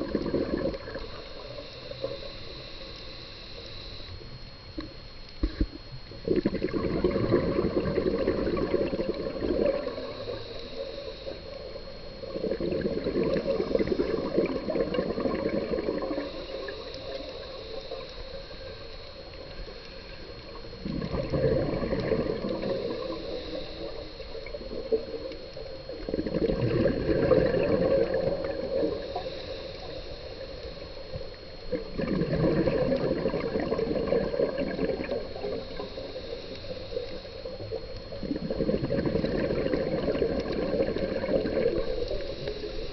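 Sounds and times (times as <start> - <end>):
exhaled bubbles gurgling: 0.0 - 42.9
faint high whine: 0.0 - 42.9
diver inhaling through regulator: 7.3 - 18.6, 20.8 - 24.8, 26.2 - 31.0, 38.4 - 42.9.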